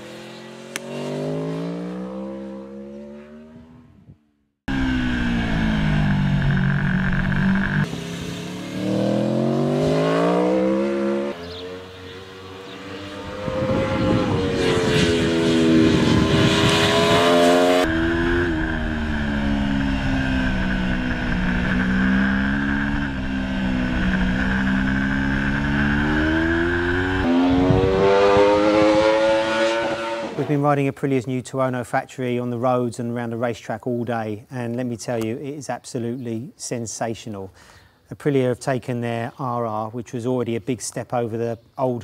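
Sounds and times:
motorcycle engine revving: 0.0 - 30.6.

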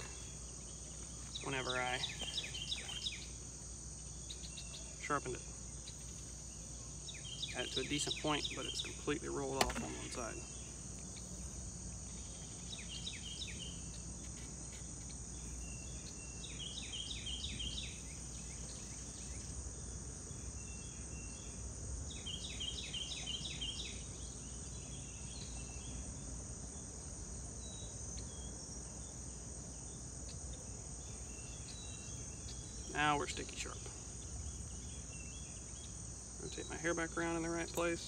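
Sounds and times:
insects droning: 0.0 - 38.0
bird singing repeated notes: 7.0 - 11.3.

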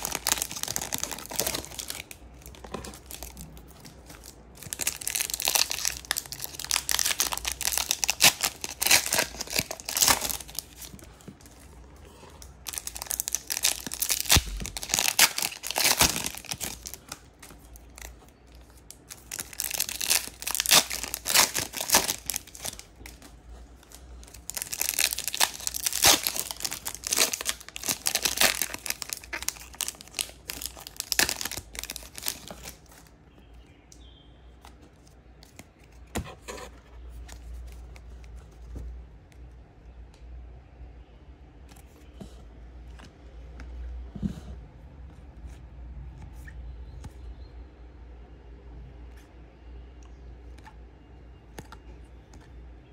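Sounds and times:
card pack wrappers torn and crinkled: 0.0 - 11.6, 12.5 - 33.1.

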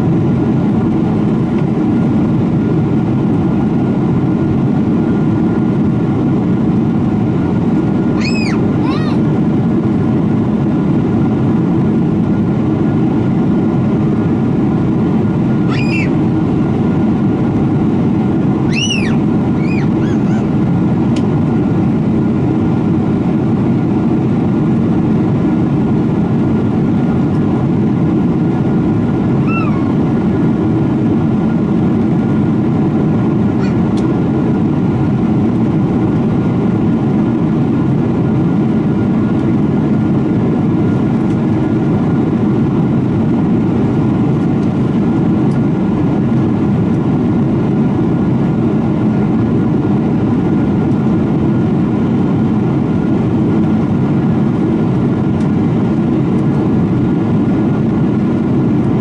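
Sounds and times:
airplane cabin roar: 0.0 - 59.0
high-pitched squeaks: 18.7 - 20.4.

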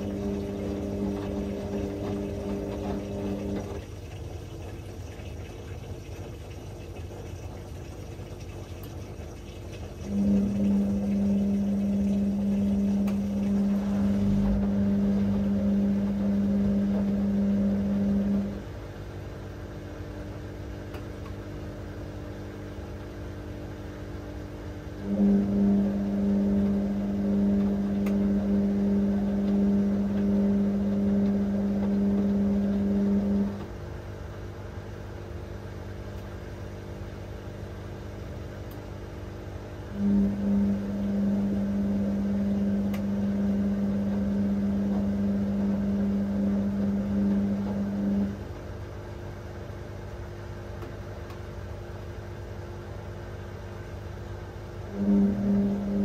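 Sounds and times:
quiet low hum: 0.0 - 35.3, 54.8 - 56.0
washing machine motor humming: 0.0 - 56.0.

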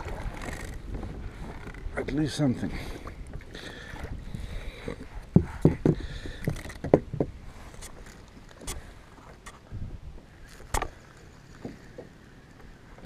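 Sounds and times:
thumps and knocks on kayak: 4.9 - 7.4.

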